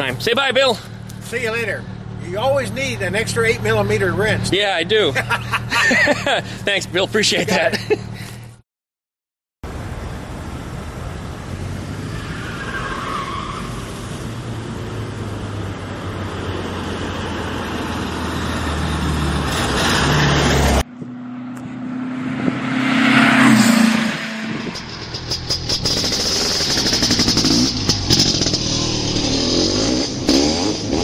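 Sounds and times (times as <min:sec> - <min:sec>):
car engine running: 0:20.8 - 0:31.0.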